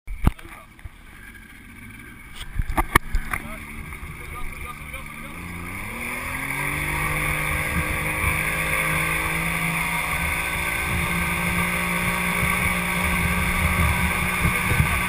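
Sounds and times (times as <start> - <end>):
motorboat engine: 0.1 - 15.0
wake rushing and churning: 0.4 - 15.0
wind gusts on microphone: 6.0 - 15.0.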